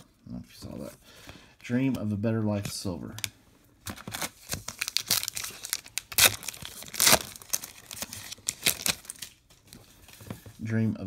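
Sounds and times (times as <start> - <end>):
foil wrapper tearing and crinkling: 4.0 - 9.4.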